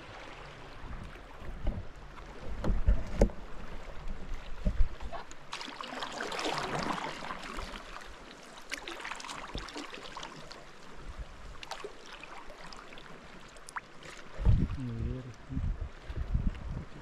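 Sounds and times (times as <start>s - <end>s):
water splashing and trickling: 0.0s - 17.0s
water drips: 13.5s - 14.2s.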